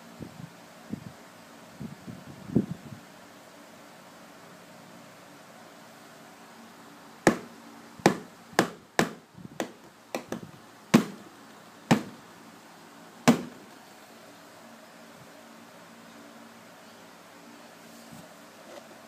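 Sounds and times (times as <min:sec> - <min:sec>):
electric fan humming: 0:00.0 - 0:19.0
sharp taps: 0:07.3 - 0:07.5.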